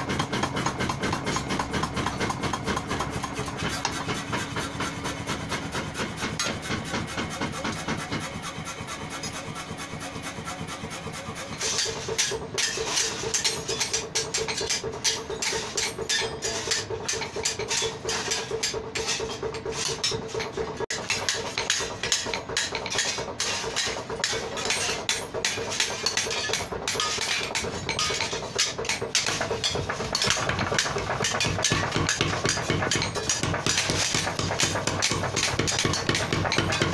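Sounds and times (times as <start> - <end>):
hammer striking steel: 11.5 - 36.9.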